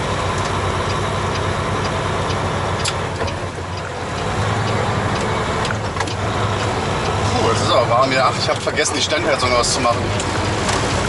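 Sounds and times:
truck diesel engine running: 0.0 - 11.0
faint regular ticking: 0.3 - 7.2.

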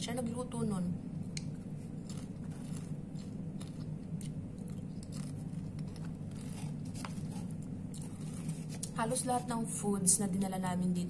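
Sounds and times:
low hum: 0.0 - 11.0
chips being chewed: 1.3 - 9.0.

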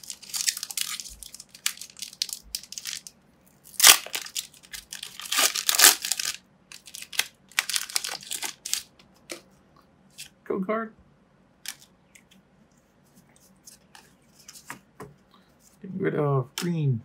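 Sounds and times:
foil wrapper crinkling and tearing: 0.0 - 8.9.

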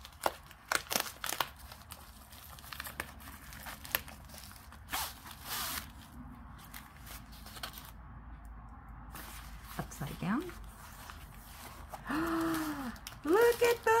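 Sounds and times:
plastic mailer crinkling: 0.0 - 8.0, 9.2 - 14.0
paper rustling: 9.1 - 14.0.

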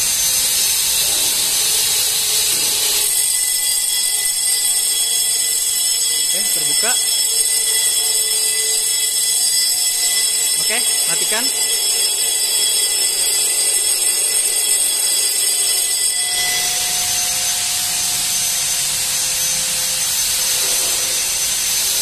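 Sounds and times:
fire alarm bell ringing: 0.0 - 22.0
steady mid-pitched tone: 3.0 - 21.2.

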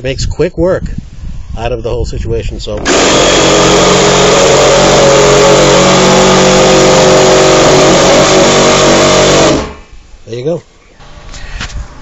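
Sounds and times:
reciprocating saw cutting plastic: 2.8 - 9.9.

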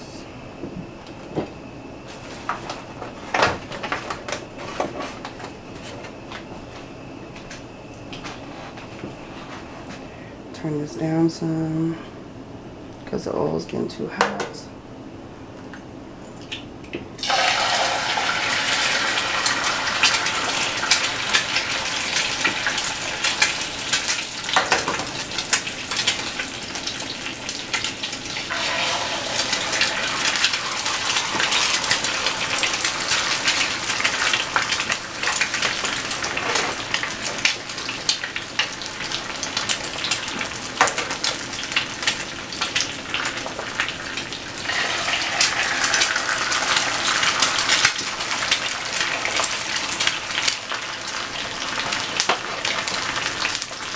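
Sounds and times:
eggs sizzling in hot oil: 17.2 - 53.9.

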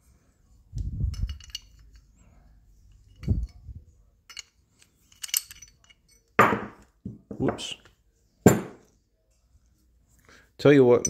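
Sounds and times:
small metal clicks and clinks: 1.0 - 2.1, 4.3 - 6.4.

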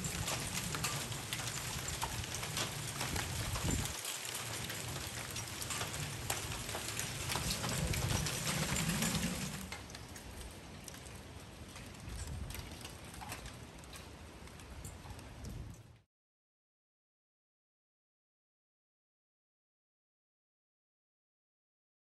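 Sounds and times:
hail and rain pelting: 0.0 - 15.8
hailstones ticking: 0.0 - 15.9.

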